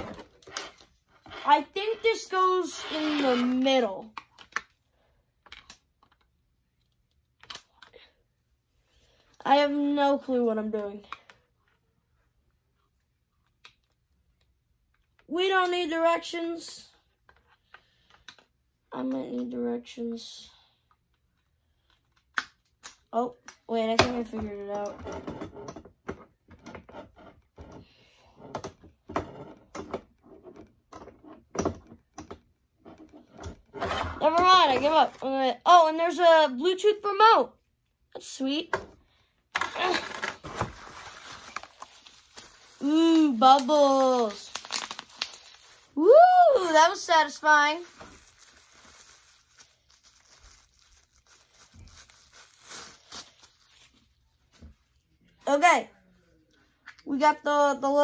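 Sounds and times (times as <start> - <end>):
bubble wrap crinkling: 39.8 - 54.5.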